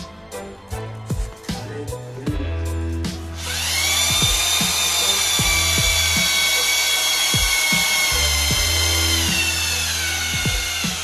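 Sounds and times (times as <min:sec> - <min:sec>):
electric hammer drill whining: 0:03.4 - 0:11.0.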